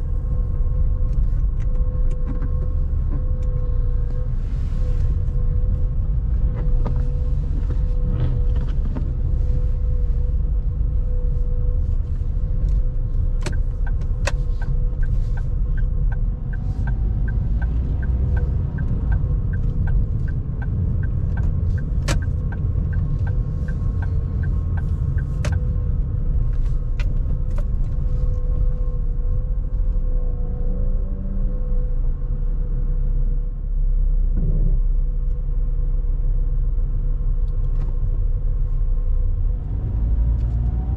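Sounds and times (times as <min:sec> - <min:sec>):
road and engine rumble: 0:00.0 - 0:40.9
light regular ticking: 0:13.4 - 0:26.0.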